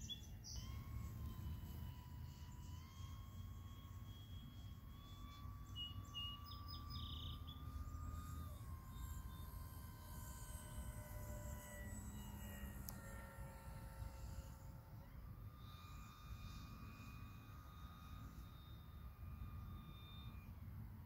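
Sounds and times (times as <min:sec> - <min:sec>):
bird chirps: 0:00.0 - 0:00.8, 0:05.6 - 0:07.7
rc plane motor whine: 0:00.0 - 0:21.0.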